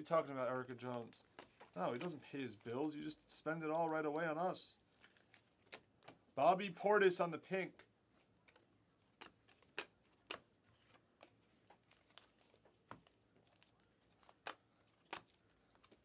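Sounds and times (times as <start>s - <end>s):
cards flipping and sliding: 8.4s - 16.0s.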